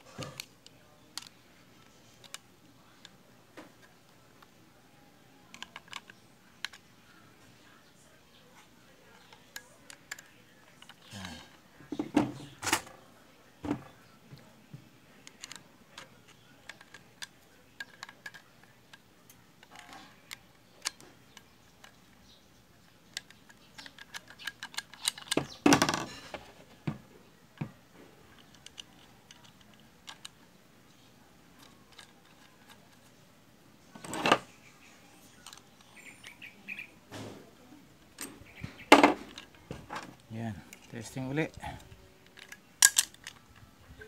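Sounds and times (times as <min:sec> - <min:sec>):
metal tool parts clicking: 0:23.1 - 0:26.3, 0:42.2 - 0:43.4.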